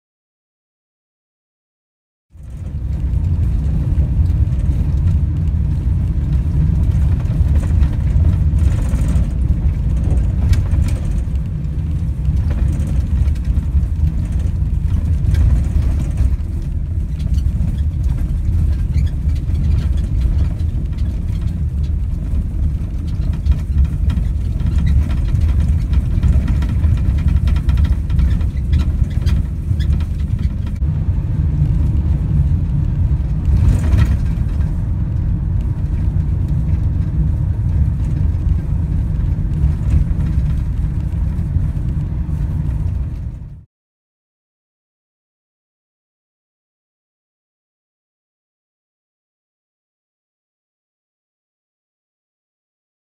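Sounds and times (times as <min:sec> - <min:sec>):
van driving on gravel: 0:02.3 - 0:43.6.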